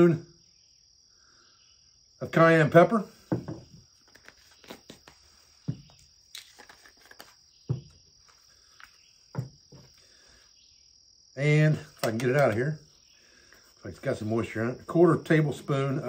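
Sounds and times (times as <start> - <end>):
insects chirping: 0.0 - 16.0
jars set down on wood: 3.2 - 3.9, 5.6 - 6.1, 7.7 - 8.0, 9.3 - 10.0.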